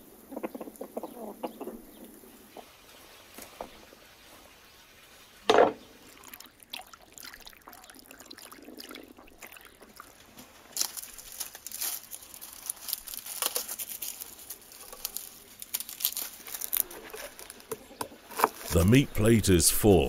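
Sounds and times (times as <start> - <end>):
faint stream trickling: 2.0 - 18.7
dry onion skins crackling: 10.4 - 18.7.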